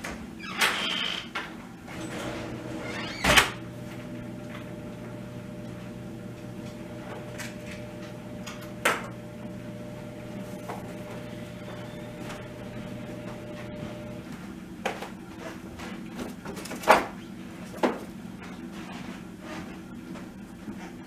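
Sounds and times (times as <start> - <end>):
diesel engine running: 3.6 - 14.3.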